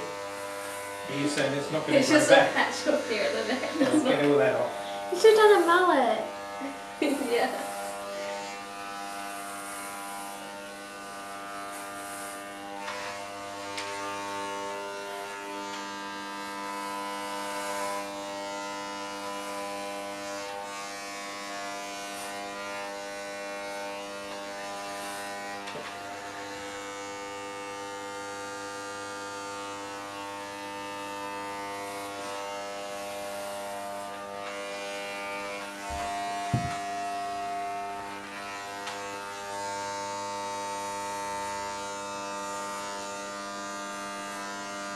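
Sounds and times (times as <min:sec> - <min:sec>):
electric hair clippers buzzing: 0:00.0 - 0:44.9
knock: 0:35.9 - 0:36.8.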